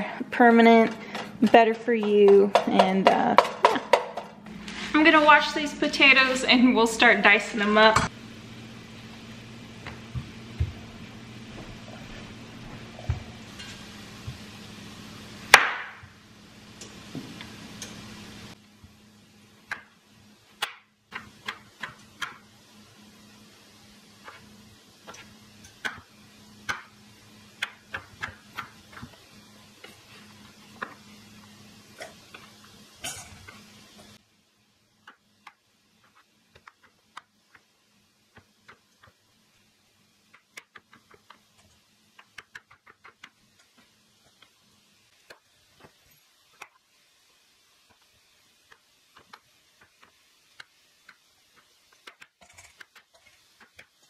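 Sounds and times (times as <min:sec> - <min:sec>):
low steady hum: 0:00.0 - 0:40.3.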